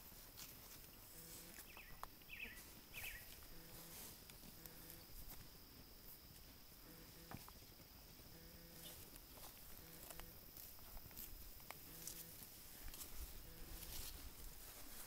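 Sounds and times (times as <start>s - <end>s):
faint bird chirps: 1.5s - 3.3s.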